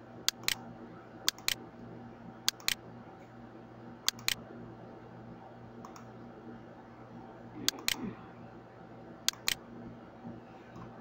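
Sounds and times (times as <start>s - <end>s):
low steady hum: 0.0s - 11.0s
computer mouse button clicking: 9.3s - 9.6s.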